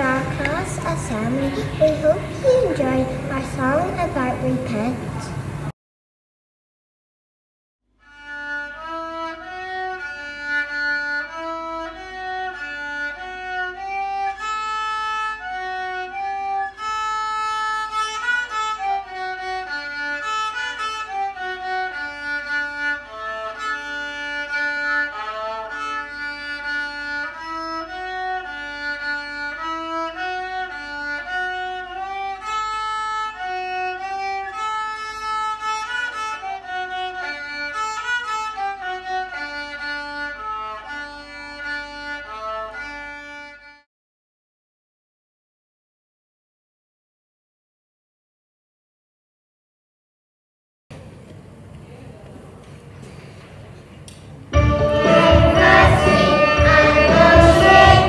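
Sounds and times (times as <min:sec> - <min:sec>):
child playing violin: 0:00.0 - 0:03.3, 0:08.0 - 0:43.9, 0:54.6 - 0:58.0.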